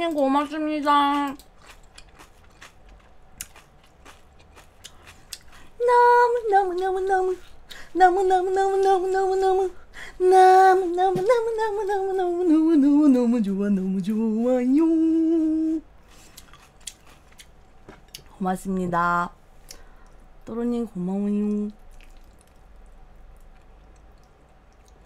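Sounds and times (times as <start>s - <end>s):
woman singing wordless tune: 0.0s - 1.4s, 5.8s - 15.9s, 20.4s - 21.8s.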